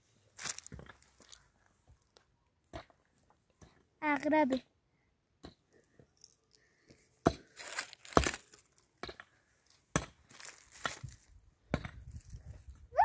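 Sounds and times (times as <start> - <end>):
sharp cracks and knocks: 7.2 - 9.3.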